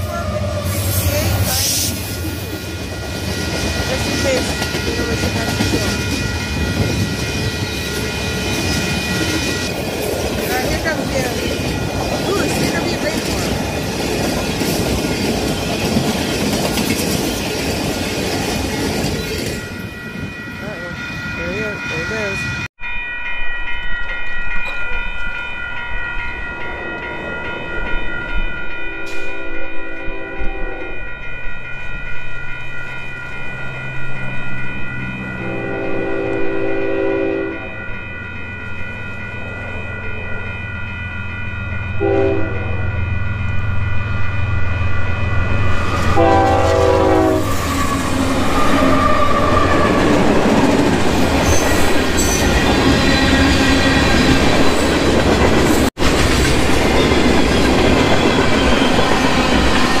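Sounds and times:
crossing bell ringing: 0.0 - 60.0
train wheels clattering on rails: 1.1 - 20.3, 47.5 - 60.0
train horn blasts: 28.9 - 31.1, 35.3 - 37.8, 42.0 - 43.1, 46.0 - 48.3.

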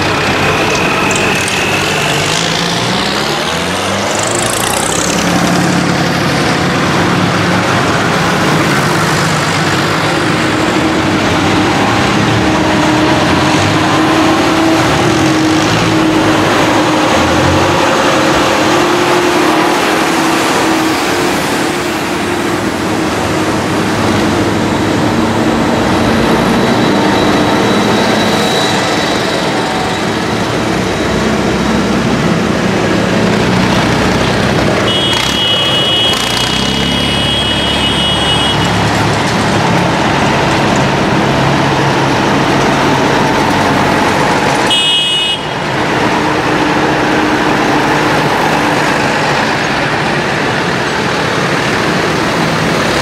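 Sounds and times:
diesel tractor engines: 0.0 - 53.0
vehicle horn: 34.8 - 38.8, 44.6 - 45.6.

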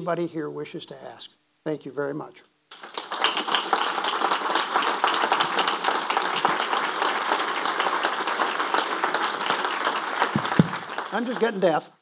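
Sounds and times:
audience applauding: 2.7 - 11.8.

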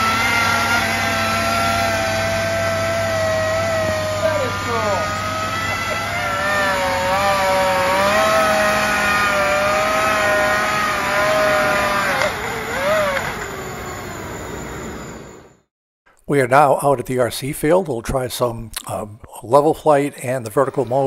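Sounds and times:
model plane motors whining: 0.0 - 15.6.

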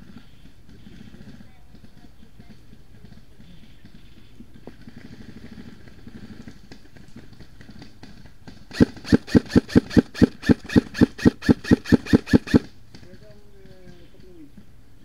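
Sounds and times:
airsoft rifle rapid fire: 7.2 - 12.8.

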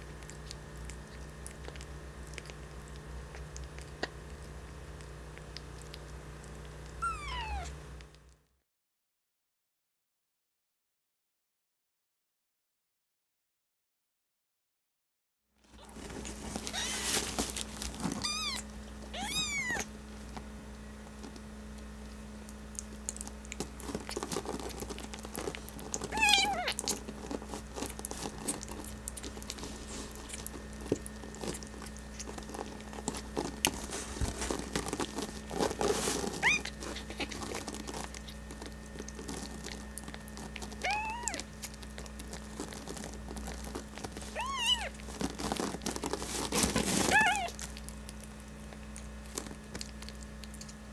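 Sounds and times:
kitten mewing: 6.9 - 7.8, 16.6 - 17.2, 18.1 - 19.9, 26.0 - 27.0, 36.3 - 38.4, 39.6 - 42.9, 44.3 - 45.1, 47.0 - 47.6
hands rustling on paper: 15.7 - 18.6, 22.8 - 50.4.

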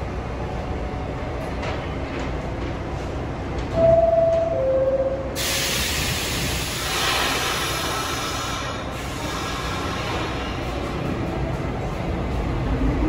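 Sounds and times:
loud hiss of air from train: 5.3 - 11.0.

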